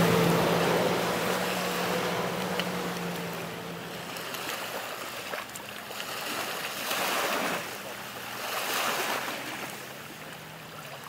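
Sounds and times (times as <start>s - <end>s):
distant jet ski engine drone: 0.0s - 11.0s
waves washing in: 0.0s - 11.0s.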